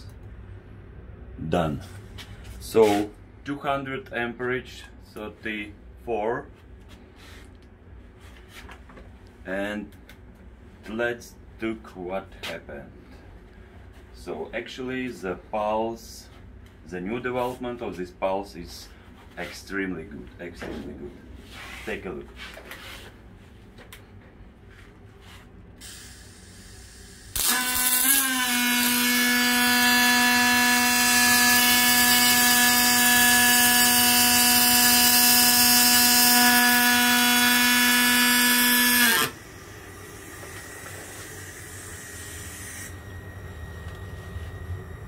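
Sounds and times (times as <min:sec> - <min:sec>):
welding arc buzzing: 0:25.8 - 0:43.4.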